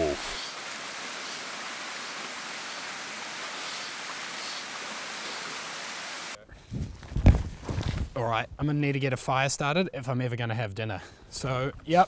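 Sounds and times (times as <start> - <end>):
stream water flowing: 0.0 - 6.4.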